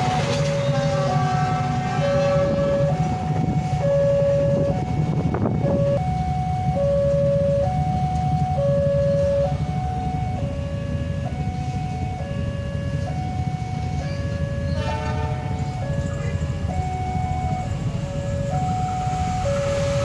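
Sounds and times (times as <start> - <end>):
train horn: 0.0 - 3.0, 14.0 - 16.2
motorcycles idling: 0.0 - 5.3
two-tone crossing warning alarm: 0.0 - 20.0.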